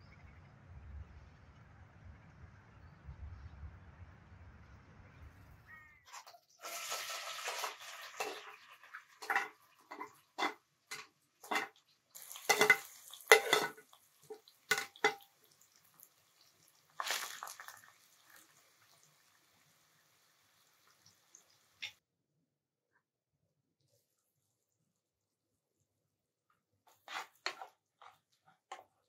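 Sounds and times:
onions sliding into pot: 0:06.6 - 0:08.6, 0:09.2 - 0:13.9, 0:17.0 - 0:17.7, 0:26.9 - 0:27.8
spatula scraping and tapping tray: 0:08.2 - 0:08.4, 0:09.2 - 0:11.8, 0:12.4 - 0:15.3, 0:26.9 - 0:28.9.

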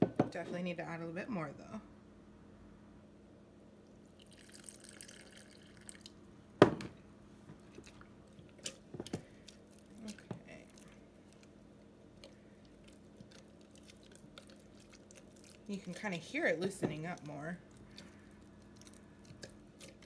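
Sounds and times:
water pouring into a jar: 0:04.1 - 0:06.2
spatula stirring thick starter: 0:07.6 - 0:20.0.

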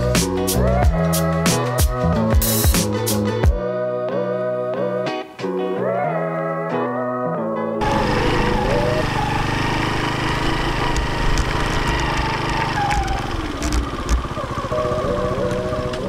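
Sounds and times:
motorcycle engine running: 0:07.8 - 0:16.0.

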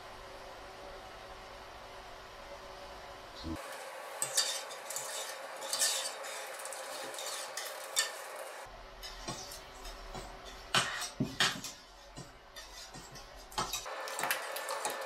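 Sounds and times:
whisk scraping metal pot: 0:04.2 - 0:08.4, 0:09.0 - 0:13.9.

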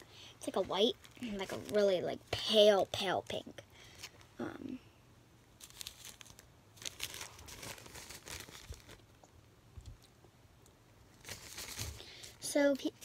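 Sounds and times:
plastic bag crinkling: 0:05.6 - 0:09.3, 0:11.1 - 0:13.0.

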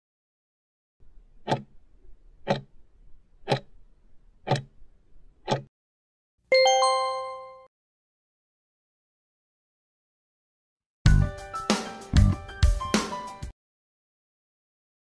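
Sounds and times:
clock ticks: 0:01.4 - 0:01.8, 0:02.4 - 0:02.7, 0:03.4 - 0:03.7, 0:04.4 - 0:04.8, 0:05.4 - 0:05.7
bell-like chime: 0:06.5 - 0:07.7.

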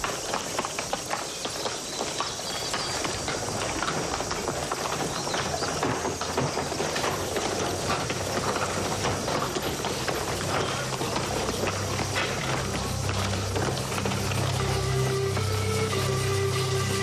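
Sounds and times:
background movement: 0:00.0 - 0:17.0
horse hooves on cobblestones: 0:00.0 - 0:17.0.

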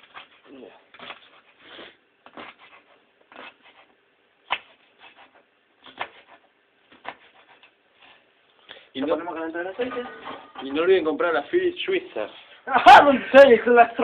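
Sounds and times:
knife chopping on wooden board: 0:04.4 - 0:07.6.

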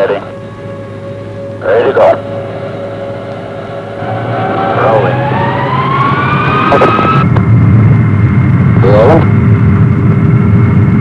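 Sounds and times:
jet engine rumble: 0:00.0 - 0:11.0
jet engine whine: 0:00.0 - 0:11.0.

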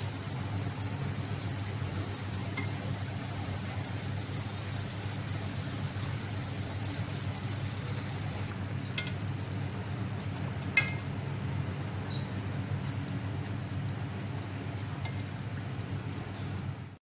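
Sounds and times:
food sizzling in a pot: 0:00.0 - 0:08.5
metal spoon clinking on pot: 0:10.8 - 0:11.0.

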